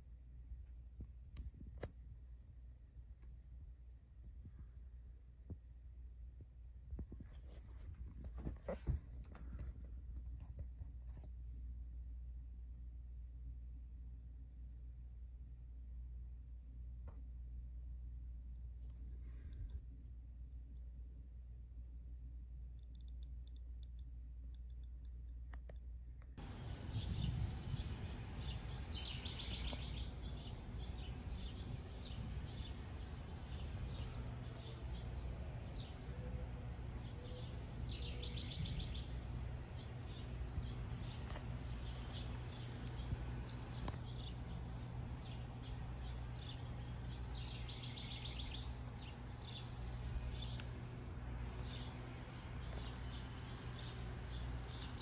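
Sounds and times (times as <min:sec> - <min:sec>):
low background noise: 0:00.0 - 0:55.0
birds chirping: 0:26.4 - 0:55.0.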